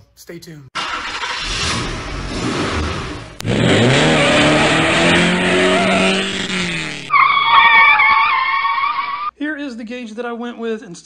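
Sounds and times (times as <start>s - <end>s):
car engine revving: 0.8s - 9.2s
high wavering tyre squeal: 3.8s - 9.3s.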